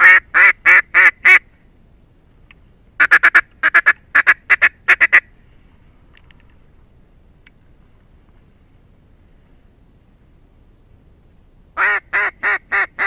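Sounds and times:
duck quacking: 0.0 - 1.4, 3.0 - 5.3, 11.8 - 13.0.

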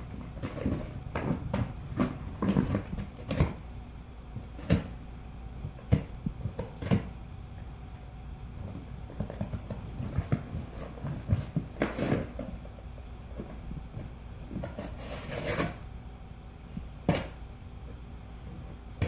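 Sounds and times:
dog tearing at cardboard box: 0.1 - 3.6, 5.8 - 7.1, 9.1 - 12.6, 14.6 - 15.8.

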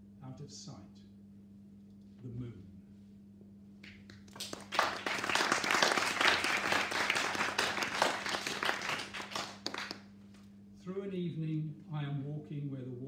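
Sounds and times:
audience applauding: 3.9 - 10.1.

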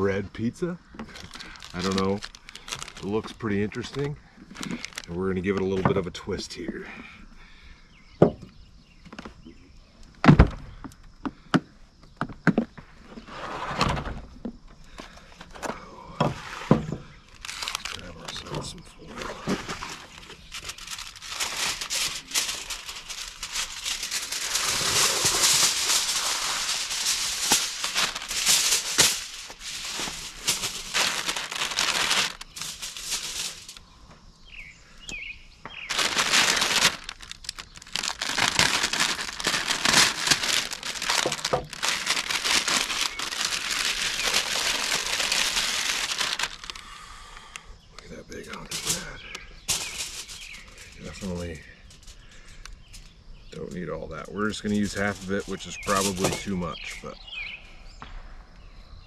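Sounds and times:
aluminum foil crinkling: 0.0 - 5.7, 17.3 - 33.8, 35.8 - 46.9, 48.4 - 57.0.

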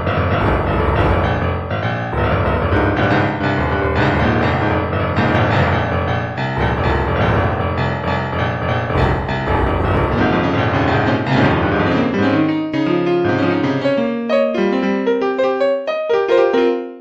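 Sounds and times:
deep bass: 0.0 - 12.2
piano background music: 0.0 - 17.0.

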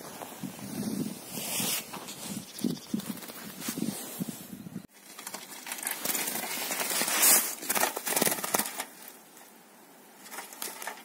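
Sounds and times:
rustling handling noise: 0.0 - 11.0.

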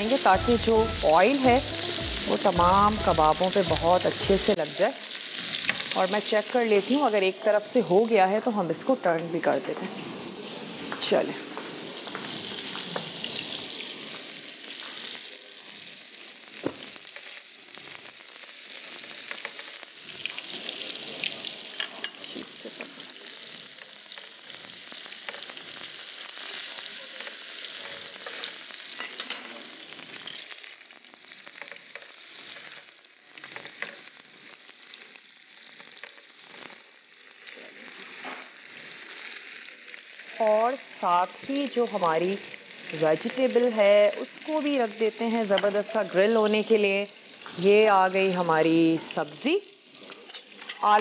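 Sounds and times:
meat sizzling on grill pan: 0.0 - 51.0
tongs clicking and scraping pan: 27.2 - 29.5, 50.0 - 51.0.

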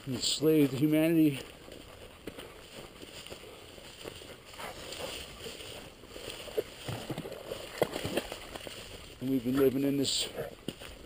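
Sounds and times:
footsteps in dry grass: 0.0 - 11.0.

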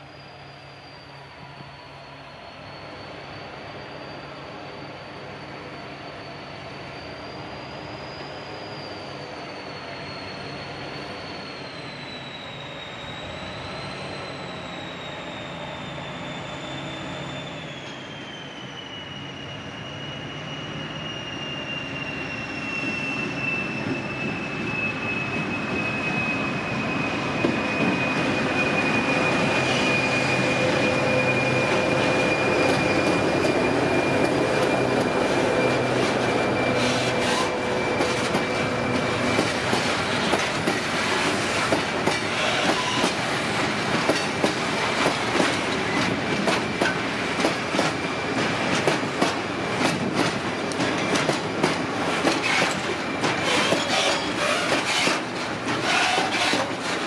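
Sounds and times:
diesel locomotive: 0.0 - 57.0
high-pitched wheel squeal: 0.0 - 57.0
rail clicks: 29.5 - 57.0.

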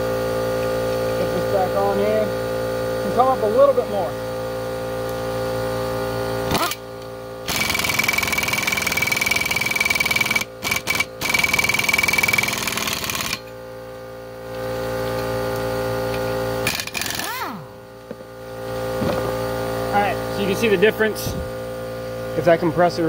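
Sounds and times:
air compressor humming: 0.0 - 23.0
impact wrench hammering: 6.4 - 6.8, 7.4 - 13.6, 16.6 - 18.2.

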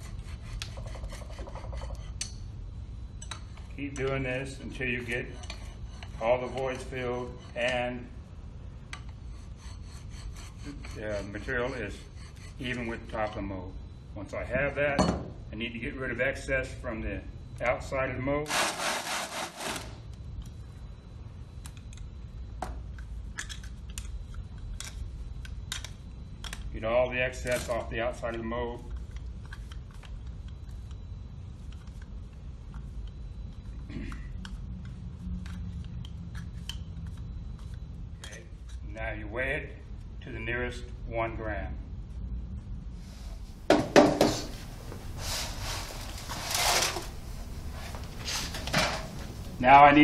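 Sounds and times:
low steady hum: 0.0 - 50.0
soft rustle: 44.3 - 49.7.

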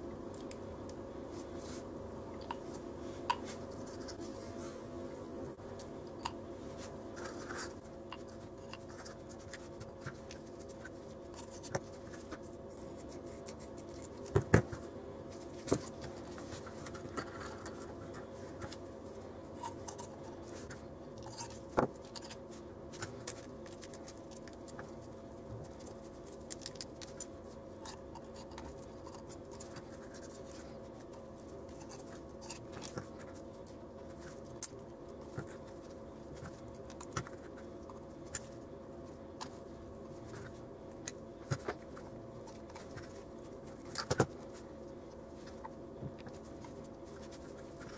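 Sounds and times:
steady low hum: 0.0 - 47.9
gloved hands packing small items: 19.6 - 47.9.

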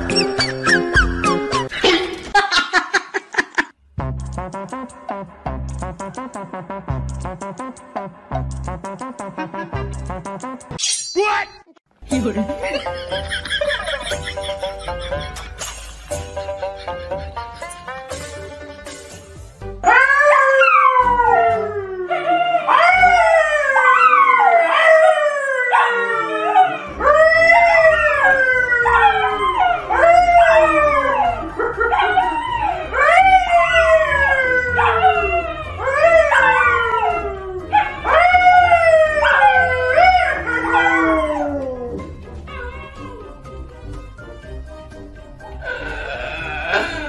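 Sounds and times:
dogs howling: 19.8 - 43.4
man howling: 45.6 - 47.0.

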